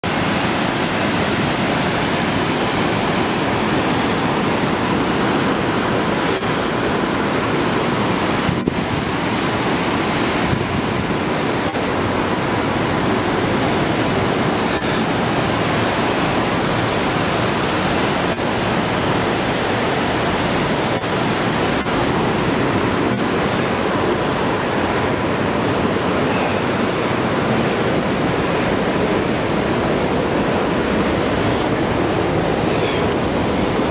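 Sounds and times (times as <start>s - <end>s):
river rushing over rocks: 0.0s - 33.9s.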